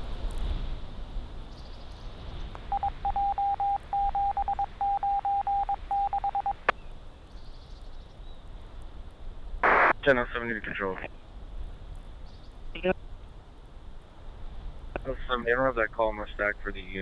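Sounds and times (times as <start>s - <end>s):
morse code beeps: 2.7s - 6.7s
low radio hiss: 8.5s - 11.5s, 12.6s - 17.0s.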